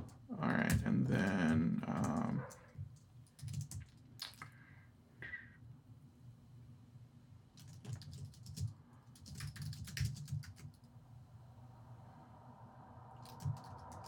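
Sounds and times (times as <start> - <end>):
computer keyboard typing: 0.7 - 4.3, 7.6 - 10.9, 13.2 - 14.0.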